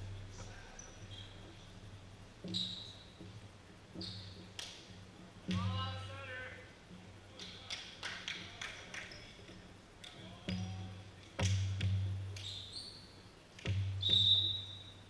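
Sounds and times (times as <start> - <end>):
sneaker squeaks on court floor: 0.8 - 1.5, 2.4 - 3.2, 4.0 - 4.4, 12.4 - 13.1, 14.0 - 14.9
volleyball bouncing on hardwood floor: 10.4 - 12.2
volleyball being hit: 11.4 - 12.1.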